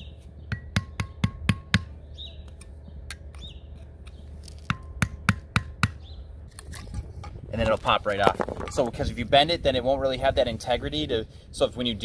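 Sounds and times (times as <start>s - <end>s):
faint birds chirping: 0.0s - 4.7s, 5.9s - 6.6s
hammer tapping metal: 0.5s - 2.0s.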